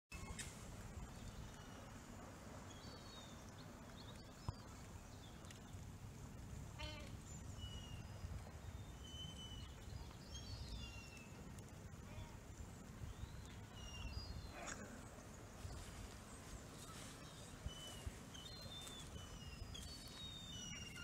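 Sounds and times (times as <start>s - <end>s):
bird trill: 16.8s - 21.0s.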